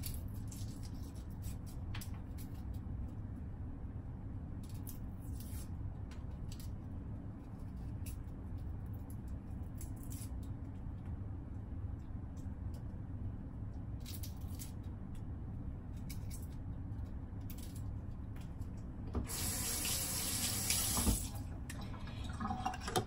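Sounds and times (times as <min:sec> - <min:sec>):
low steady hum: 0:00.0 - 0:23.0
kitchen tap running: 0:19.2 - 0:23.0.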